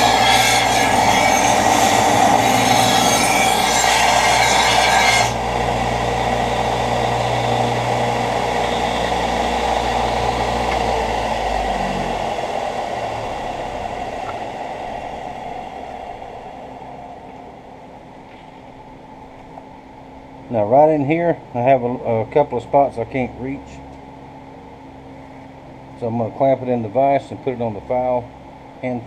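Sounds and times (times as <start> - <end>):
belt grinder grinding steel: 0.0 - 5.5
grinder motor humming: 0.0 - 17.6.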